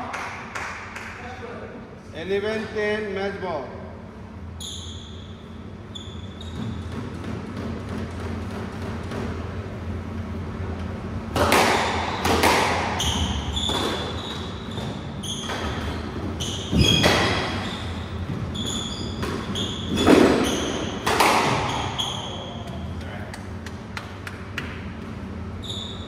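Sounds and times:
shoes squeaking on wooden floor: 5.9 - 7.2, 13.0 - 22.9
rackets hitting squash ball: 6.0 - 26.0.

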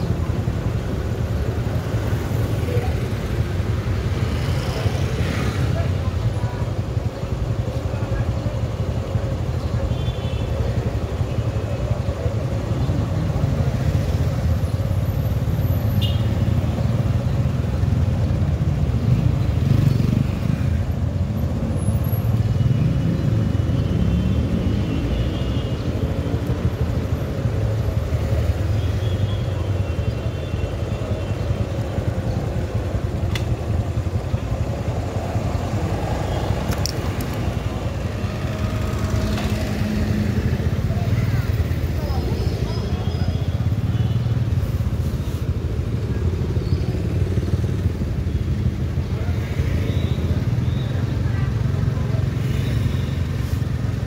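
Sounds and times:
motorcycle engine rumble: 25.5 - 54.0.

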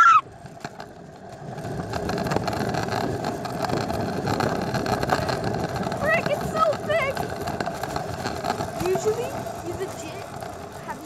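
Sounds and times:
wheels rolling on asphalt: 0.0 - 11.0
wind on microphone: 1.5 - 9.9.

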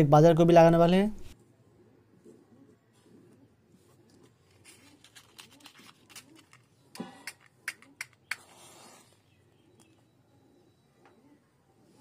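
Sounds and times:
match scraping on box: 4.5 - 9.3
matchbox clicks: 5.0 - 8.6.

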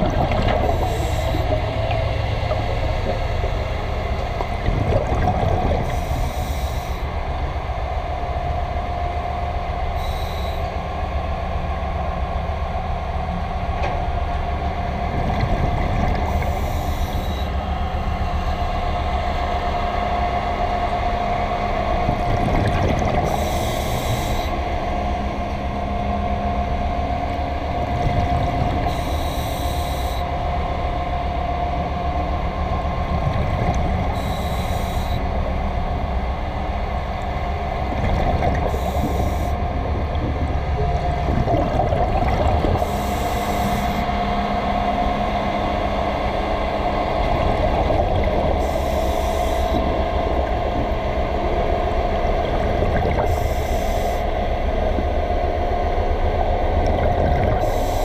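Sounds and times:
exhaled bubbles hissing underwater: 0.0 - 7.1, 15.0 - 17.6, 21.4 - 25.2, 27.7 - 30.3, 33.3 - 35.3, 37.4 - 55.2, 56.7 - 58.0
low rumble and hum: 0.0 - 58.0.

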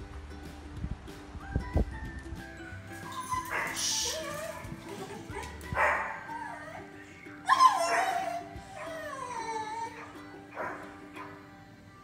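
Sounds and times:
background music: 0.0 - 12.0
dog whining and yipping: 3.0 - 11.4.

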